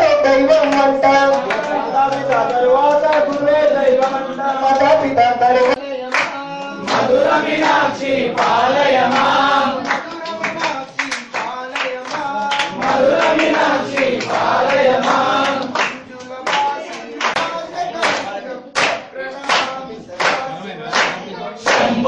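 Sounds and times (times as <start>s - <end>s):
men singing devotional song: 0.2s - 22.0s
hands clapping in time: 5.7s - 22.0s.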